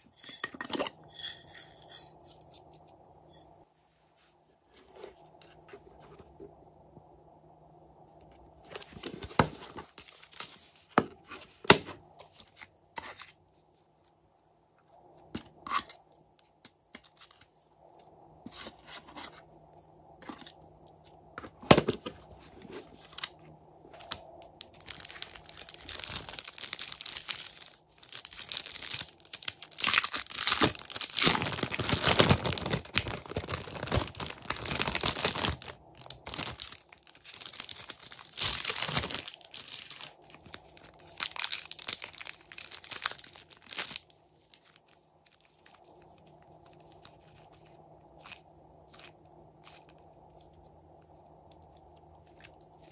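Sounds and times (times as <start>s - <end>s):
plastic bag crinkling: 24.0s - 50.0s.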